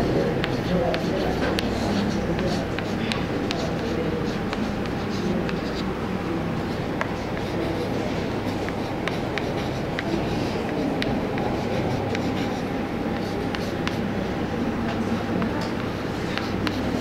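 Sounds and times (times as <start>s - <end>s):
chalk tapping on a blackboard: 0.4s - 5.9s, 8.5s - 14.1s, 15.4s - 17.0s.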